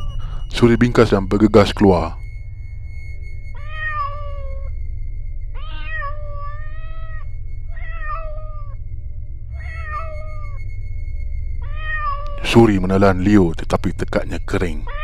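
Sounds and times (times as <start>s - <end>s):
low steady drone: 0.0s - 15.0s
cat meowing: 3.6s - 4.7s, 5.6s - 8.8s, 9.6s - 10.6s, 11.6s - 12.4s.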